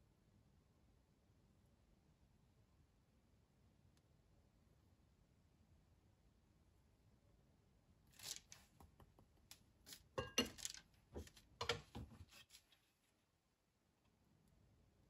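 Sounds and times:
metal spoon clinking in ceramic bowl: 0:10.2 - 0:10.8.

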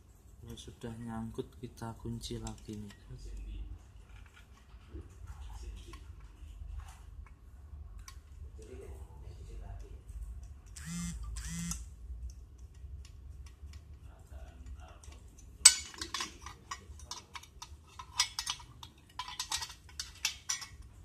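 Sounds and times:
metal bracket arms clicking and clanking: 0:14.6 - 0:21.0.

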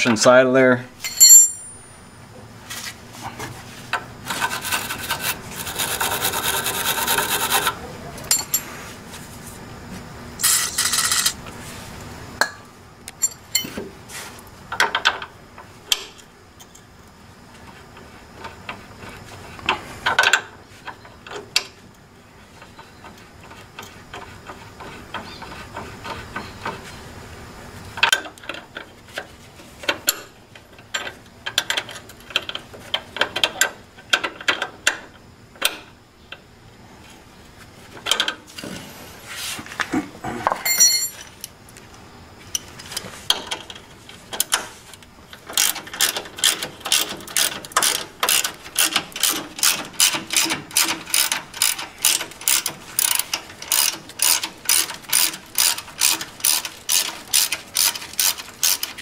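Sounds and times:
hand ratchet clicking: 0:45.4 - 0:59.0.

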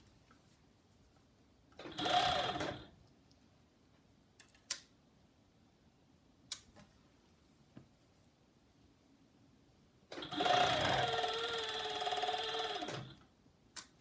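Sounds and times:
overlock serger running: 0:01.8 - 0:02.9, 0:10.2 - 0:13.2.

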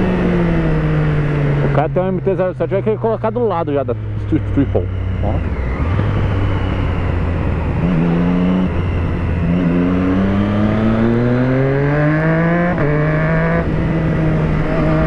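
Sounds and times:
motorcycle engine accelerating: 0:00.0 - 0:15.0
wind rush: 0:05.2 - 0:09.6.

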